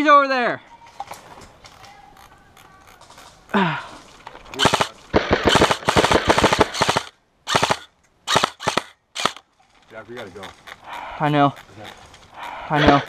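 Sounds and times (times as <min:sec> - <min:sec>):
airsoft rifle bursts: 0:04.6 - 0:09.4.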